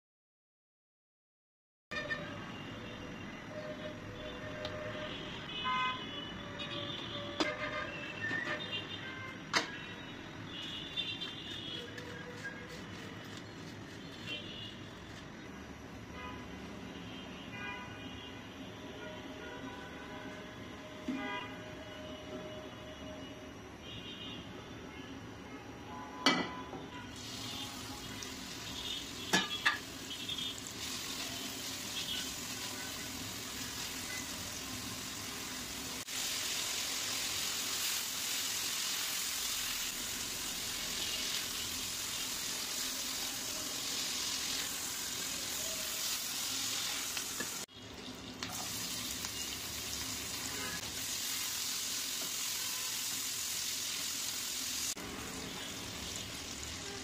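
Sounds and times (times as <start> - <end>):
food sizzling in hot oil: 27.1 - 57.0.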